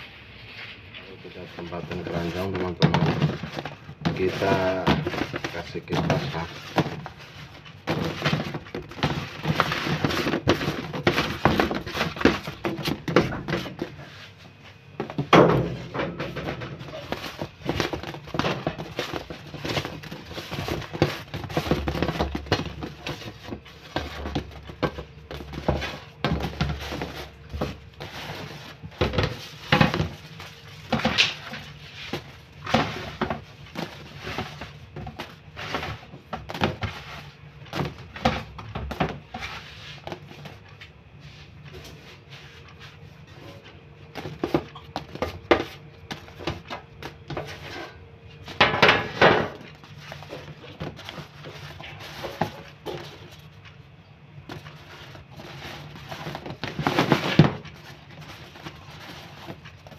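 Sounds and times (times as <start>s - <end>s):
bread rolls thudding into basket: 15.0s - 39.5s.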